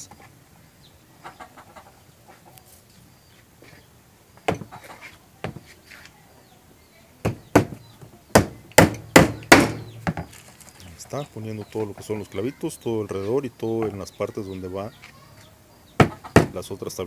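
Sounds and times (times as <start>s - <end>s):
hammer driving nails into wood: 7.2s - 10.2s.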